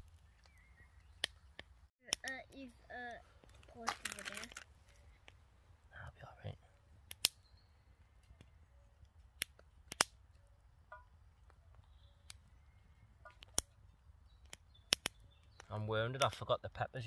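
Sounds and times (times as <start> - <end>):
sharp clicks: 7.1 - 7.4, 9.1 - 10.2, 13.3 - 13.8, 14.4 - 16.4.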